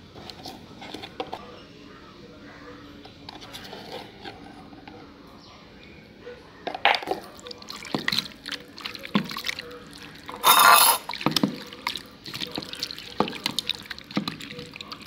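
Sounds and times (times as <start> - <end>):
hand mixing wet chicken: 7.2 - 15.0.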